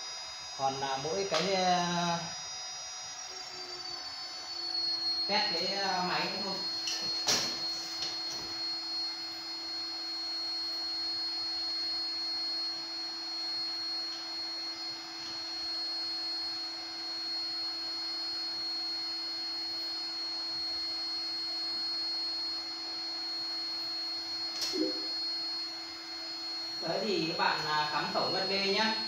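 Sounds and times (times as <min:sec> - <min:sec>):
router spindle whining: 0:00.0 - 0:08.3.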